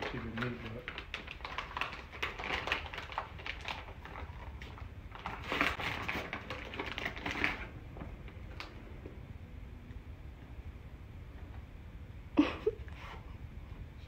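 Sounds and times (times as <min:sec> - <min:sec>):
wrapping paper crinkling and tearing: 0:00.0 - 0:07.7.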